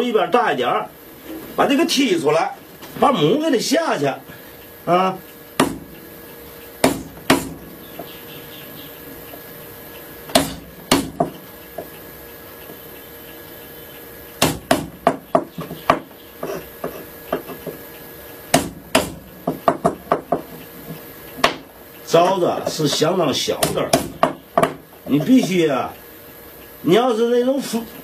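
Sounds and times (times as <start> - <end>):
hammer striking wood chisel: 5.6 - 5.9, 6.8 - 8.1, 10.3 - 11.4, 14.4 - 17.8, 18.5 - 20.5, 23.6 - 24.8.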